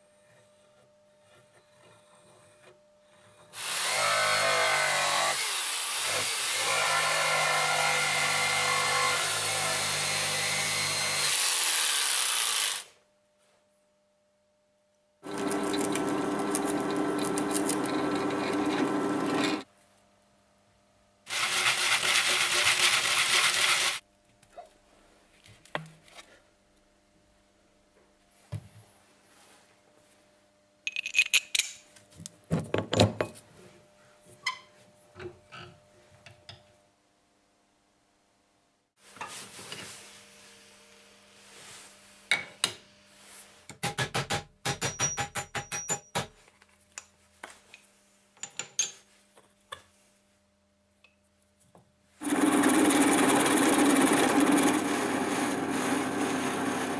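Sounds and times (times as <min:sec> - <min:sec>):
drill press boring wood: 0:15.2 - 0:19.6, 0:52.2 - 0:56.9.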